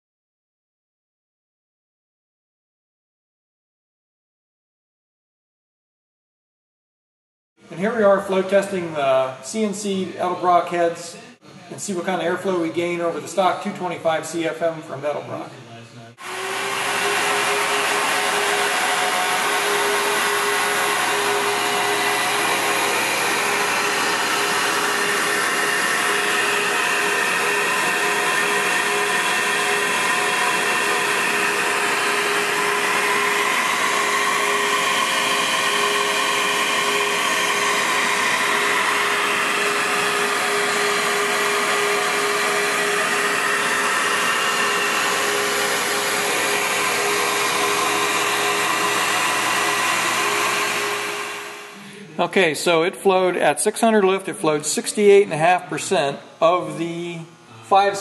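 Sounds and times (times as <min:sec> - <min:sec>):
flow bench rushing air with hum: 0:16.6 - 0:52.1.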